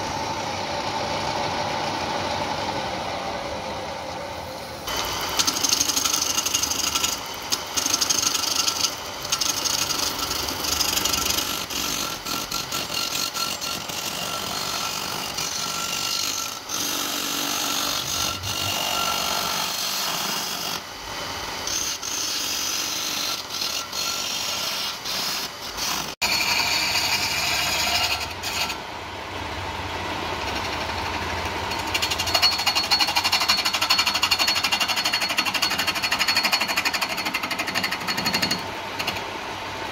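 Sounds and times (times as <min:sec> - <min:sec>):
chisel scraping wood on a lathe: 0:05.0 - 0:20.4, 0:21.7 - 0:28.8.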